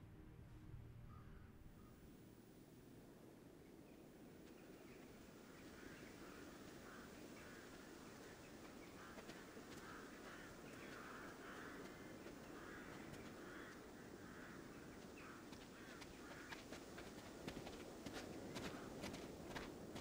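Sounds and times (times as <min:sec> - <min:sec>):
low outdoor hush: 0:00.0 - 0:20.0
crows cawing: 0:05.6 - 0:20.0
soft footsteps: 0:05.6 - 0:20.0.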